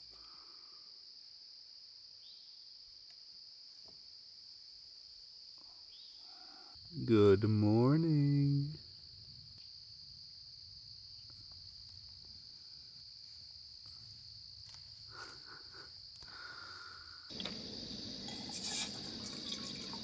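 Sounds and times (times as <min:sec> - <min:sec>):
crickets trilling: 0:00.0 - 0:20.0
camp stove burner hissing: 0:16.2 - 0:20.0.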